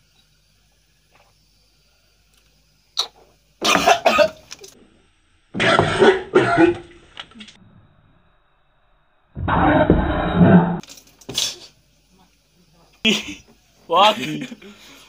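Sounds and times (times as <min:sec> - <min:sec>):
person coughing hard: 0:03.6 - 0:04.4, 0:05.6 - 0:06.8.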